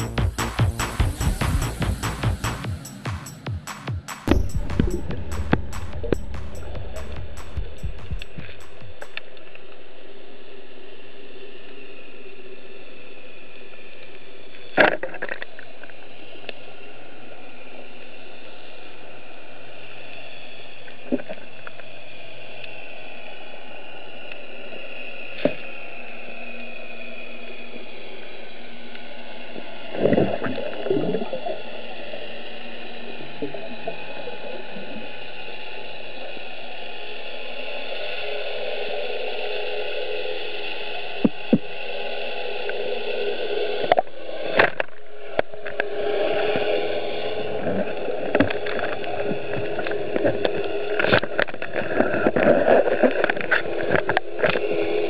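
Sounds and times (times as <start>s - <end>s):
faint drifting tones: 0.0s - 55.0s
water bubbling: 4.3s - 9.5s
underwater hiss: 16.0s - 55.0s
water crackling and sloshing: 43.8s - 55.0s.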